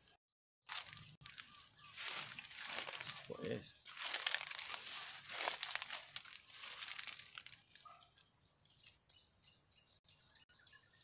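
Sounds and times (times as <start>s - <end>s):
dry leaves crunching: 0.7s - 7.9s.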